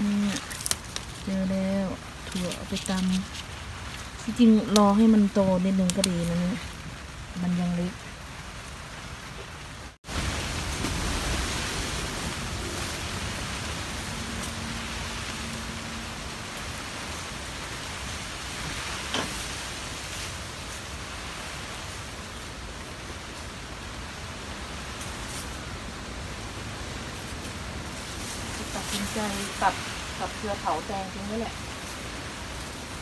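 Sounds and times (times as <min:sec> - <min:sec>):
wind and rain on microphone: 0:00.0 - 0:33.0.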